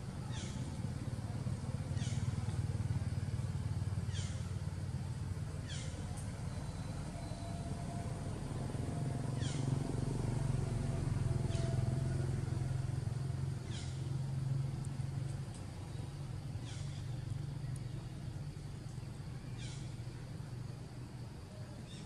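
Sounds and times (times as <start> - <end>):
low engine-like rumble: 0.0 - 22.0.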